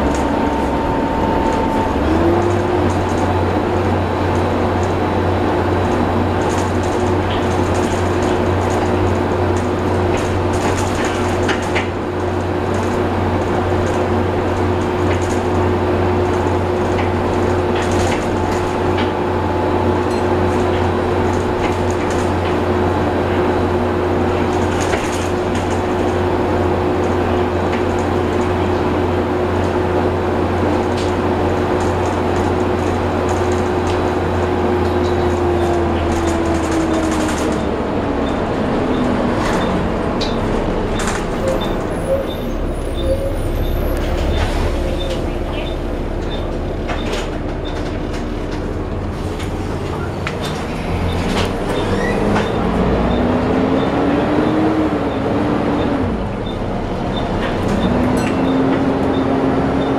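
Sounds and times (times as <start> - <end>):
bus body rattles: 0.0 - 59.9
bus engine drone: 0.0 - 59.9.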